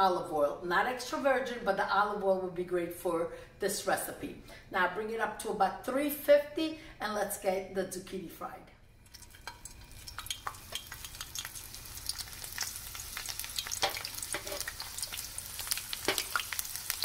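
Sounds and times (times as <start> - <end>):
sizzling oil with crackling pops: 9.0 - 17.0.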